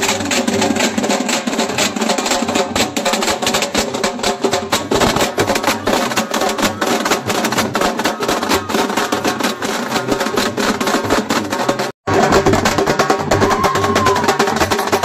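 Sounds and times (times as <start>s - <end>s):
drum band playing fast rhythm: 0.0s - 15.0s.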